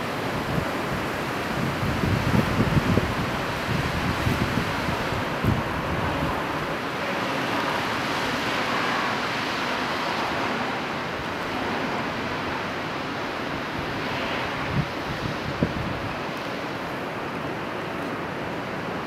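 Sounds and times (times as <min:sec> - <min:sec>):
wind buffeting microphone: 0:00.0 - 0:10.3, 0:13.4 - 0:17.6
steady rushing outdoor noise: 0:00.0 - 0:19.0.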